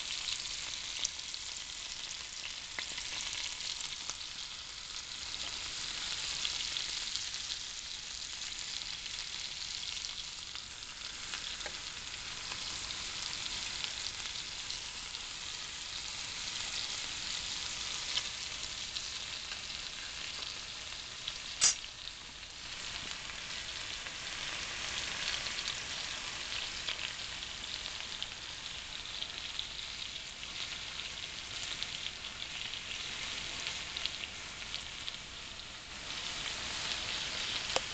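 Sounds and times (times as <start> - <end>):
steaks sizzling in a pan: 0.0 - 37.9
sharp click: 21.6 - 21.8.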